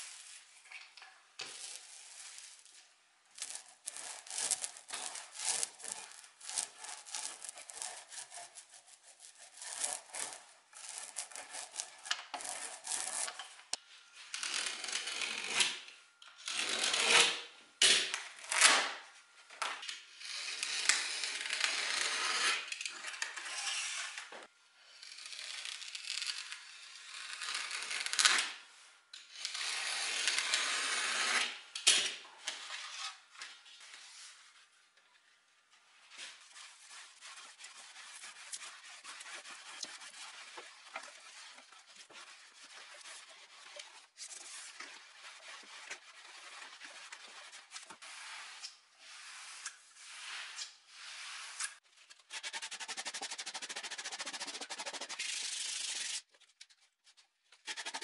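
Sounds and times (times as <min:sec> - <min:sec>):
paint roller sticky crackle: 0:00.0 - 0:13.8, 0:35.8 - 0:56.9
blade scraping through wood veneer: 0:03.4 - 0:13.5, 0:36.1 - 0:56.3.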